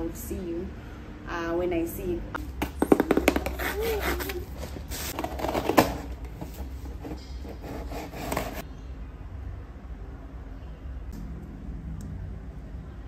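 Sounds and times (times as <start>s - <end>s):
close rubbing and handling noise: 3.1s - 8.6s.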